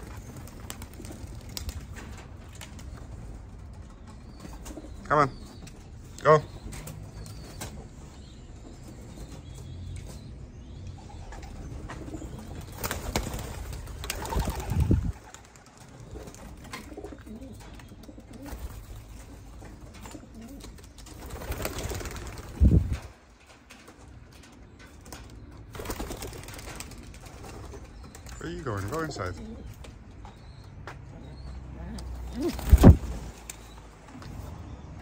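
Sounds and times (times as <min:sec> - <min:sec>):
pigeons cooing: 0:00.0 - 0:23.1, 0:24.8 - 0:34.9
wings clattering: 0:11.9 - 0:29.5, 0:32.2 - 0:33.6.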